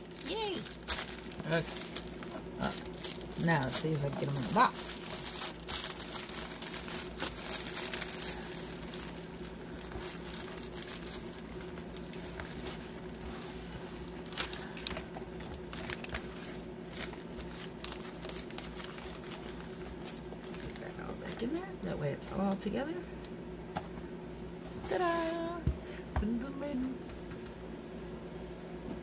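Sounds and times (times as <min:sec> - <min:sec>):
plastic bags crinkling: 0:00.0 - 0:21.7.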